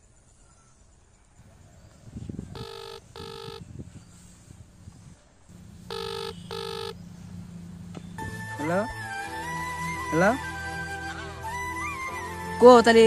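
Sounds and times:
phone ringback tone: 2.4 - 3.7, 5.8 - 7.0.

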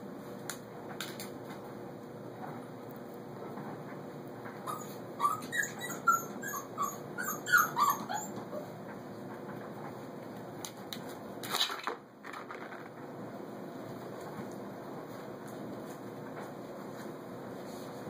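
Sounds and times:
puppies yipping and squealing: 4.6 - 8.8.

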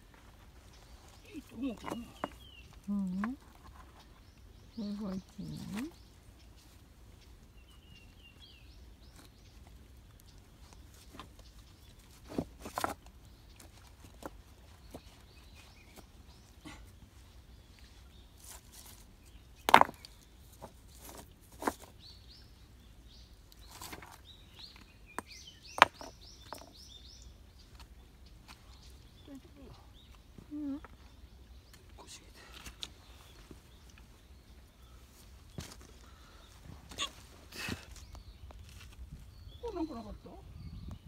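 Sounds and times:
small birds chirping: 0.0 - 41.0
rocks knocking together: 19.6 - 21.9, 25.2 - 26.8.

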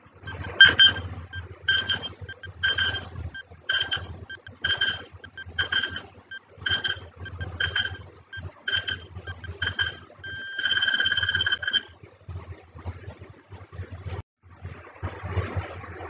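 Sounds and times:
rapid pulsing alarm ring: 0.3 - 0.8, 2.3 - 3.0, 3.8 - 5.8, 6.7 - 11.6
beeping timer ticks: 0.3 - 11.6.

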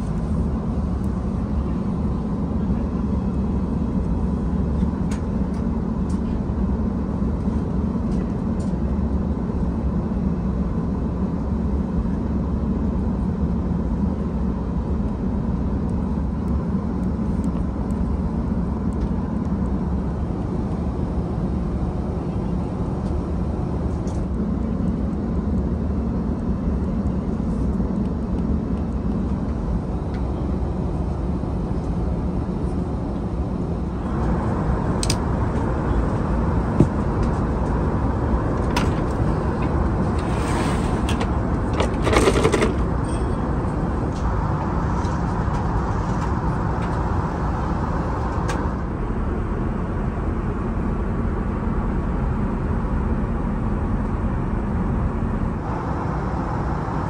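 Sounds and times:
airliner cabin noise: 0.0 - 57.0
wooden table sliding scrape: 40.0 - 42.7.

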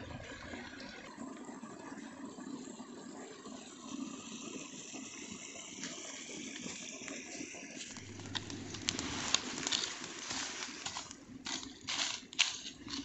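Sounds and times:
steady outdoor hiss: 0.0 - 13.0
twig fire crackling: 6.6 - 13.0.

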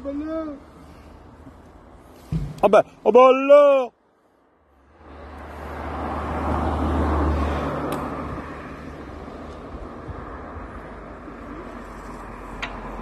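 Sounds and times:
vehicle passing: 4.2 - 13.0.

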